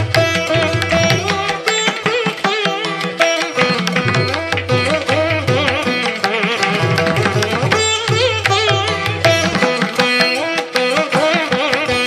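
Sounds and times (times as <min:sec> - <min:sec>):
plucked string instrumental music: 0:00.0 - 0:12.0.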